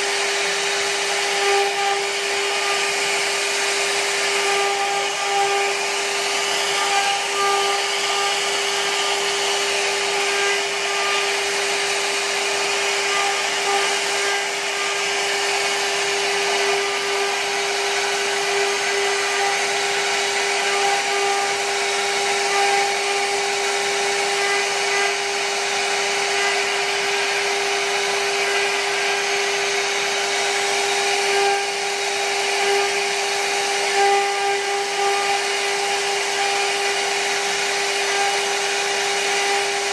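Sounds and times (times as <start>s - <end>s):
bit rasping through wood: 0.0s - 39.9s
router spindle whine: 0.0s - 39.9s.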